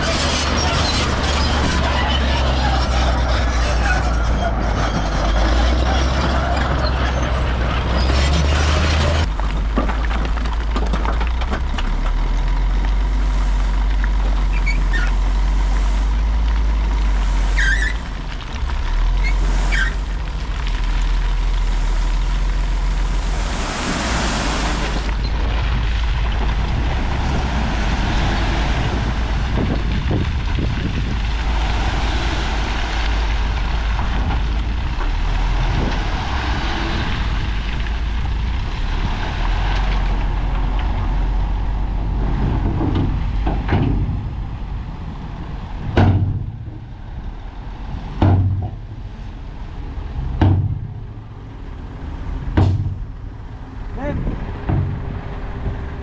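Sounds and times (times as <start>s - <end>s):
heavy diesel machinery running: 0.0s - 10.0s
short high squeaks: 17.5s - 18.0s.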